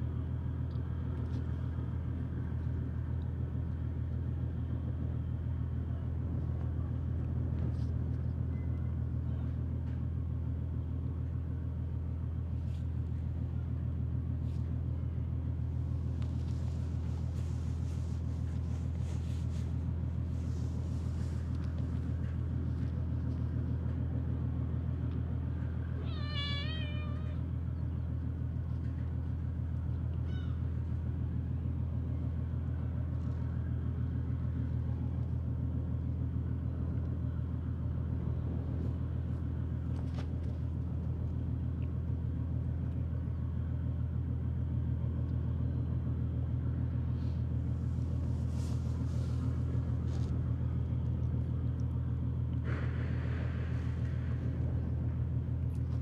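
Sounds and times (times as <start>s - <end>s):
steady low rumble: 0.0s - 56.0s
cat meowing: 26.0s - 27.4s
faint cat cry: 26.0s - 27.5s, 30.2s - 30.6s.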